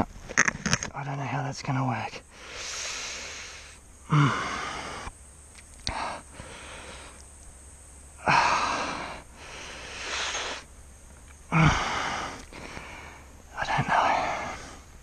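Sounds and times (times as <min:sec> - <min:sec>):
man breathing hard: 0:02.3 - 0:05.1, 0:05.8 - 0:07.2, 0:08.2 - 0:10.7, 0:11.5 - 0:13.3, 0:13.9 - 0:15.0
man grunting: 0:04.1 - 0:04.8, 0:11.5 - 0:12.4.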